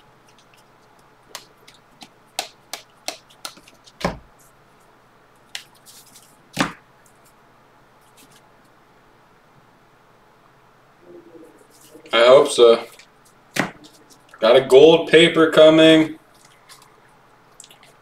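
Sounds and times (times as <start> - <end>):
cards clicking and tapping: 1.3 - 4.2
card stack thumps: 1.3 - 4.3, 6.5 - 6.8, 13.5 - 14.0.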